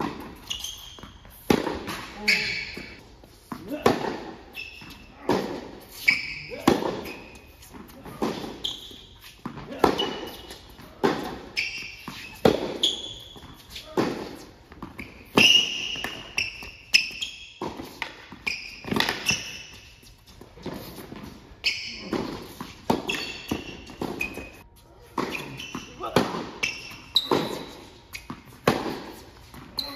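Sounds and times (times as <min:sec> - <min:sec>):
ball bouncing on hard court: 0:00.0 - 0:05.7, 0:06.5 - 0:19.9, 0:20.6 - 0:29.9
sneaker squeaks: 0:00.0 - 0:29.9
racket striking ball: 0:01.4 - 0:02.2, 0:06.6 - 0:07.2, 0:11.0 - 0:13.0, 0:14.0 - 0:19.6, 0:22.0 - 0:29.2.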